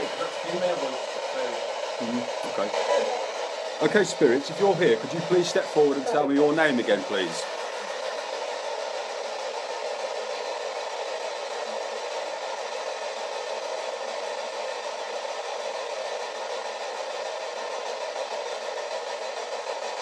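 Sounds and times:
radio static hiss: 0.0 - 7.5.

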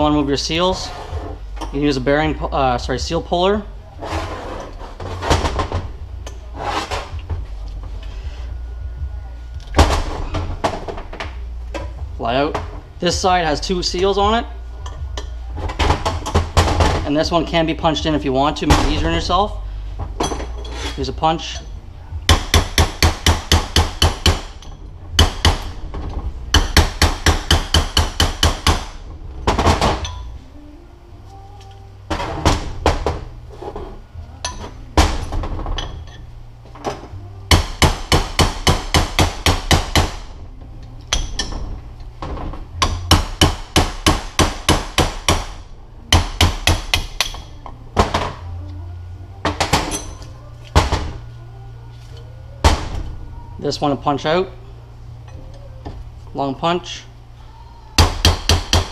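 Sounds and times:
hammer striking a metal punch: 22.3 - 25.8, 26.5 - 29.0, 37.5 - 40.2, 41.1 - 41.6, 42.8 - 48.3, 58.0 - 58.9.

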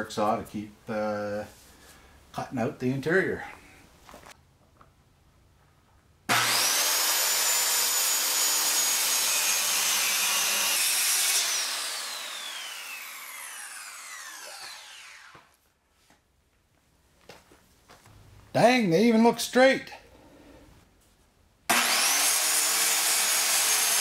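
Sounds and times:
circular saw cutting wood: 6.3 - 15.5, 21.7 - 24.0
saw blade winding down: 6.3 - 15.5, 21.7 - 24.0.

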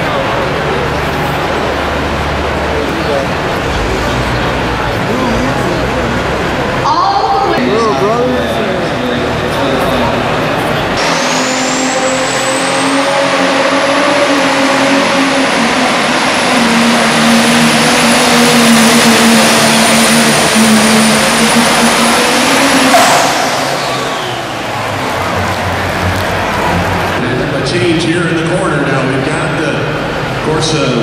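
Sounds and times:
diesel engine at full power: 0.0 - 31.0
high turbo whine: 0.0 - 31.0.

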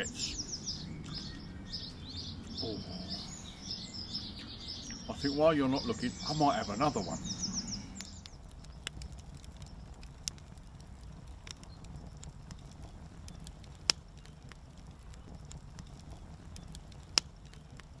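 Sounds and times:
low rumble: 0.0 - 13.7
wood fire crackling and popping: 0.0 - 18.0.

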